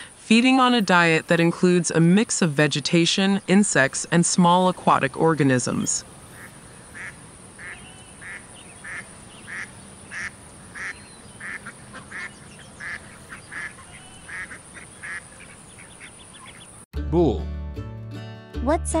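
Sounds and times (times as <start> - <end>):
duck quacking: 6.3 - 16.7.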